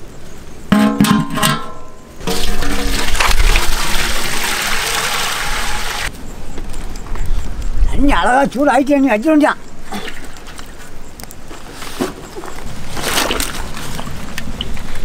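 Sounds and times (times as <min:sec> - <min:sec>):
metal cooking pot ringing: 0:00.7 - 0:04.0
water pouring into pot: 0:02.2 - 0:06.1.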